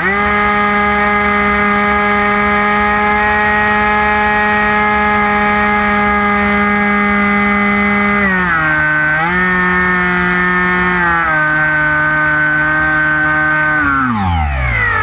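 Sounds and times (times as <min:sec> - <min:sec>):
electric motor and propeller whine: 0:00.0 - 0:15.0.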